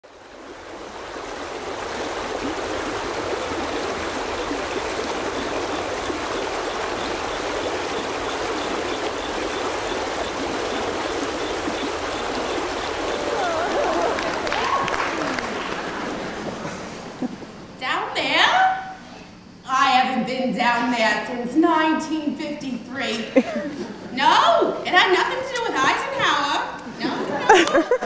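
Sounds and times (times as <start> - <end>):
running water: 0.0 - 20.0.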